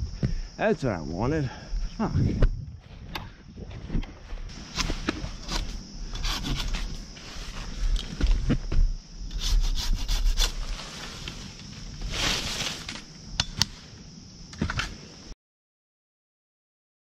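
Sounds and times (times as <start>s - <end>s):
hand saw cutting a limb: 4.7s - 7.0s, 9.3s - 10.7s.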